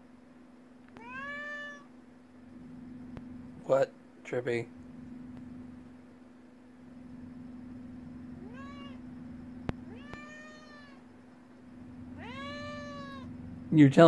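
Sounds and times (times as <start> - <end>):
cat meowing: 0.9 - 1.9, 8.4 - 9.1, 9.8 - 11.1, 12.1 - 13.4.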